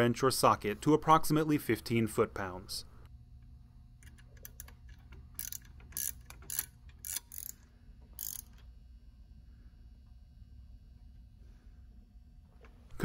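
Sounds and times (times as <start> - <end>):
ratchet wrench clicking: 4.0 - 8.6.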